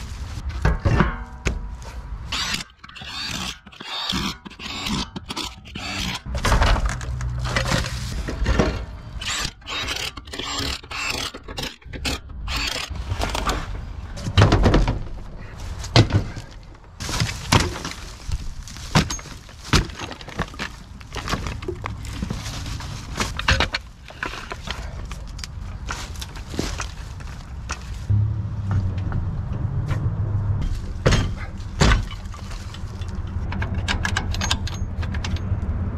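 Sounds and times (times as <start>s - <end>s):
impact wrench rattling: 7.6s - 12.9s.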